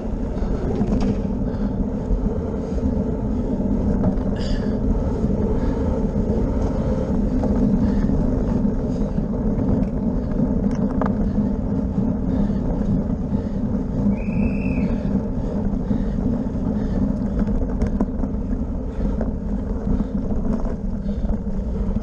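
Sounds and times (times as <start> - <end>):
bicycle rattling over cobblestones: 0.0 - 22.0
wind buffeting microphone: 0.0 - 22.0.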